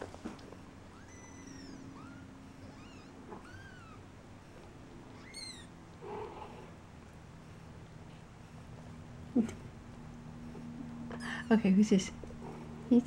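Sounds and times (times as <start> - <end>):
kittens mewing: 0.8 - 6.8.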